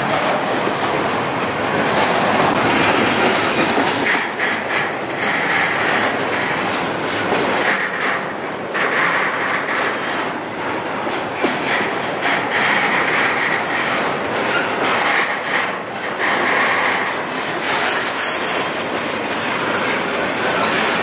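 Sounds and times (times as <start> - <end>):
train wheels running on rails: 0.0 - 21.0.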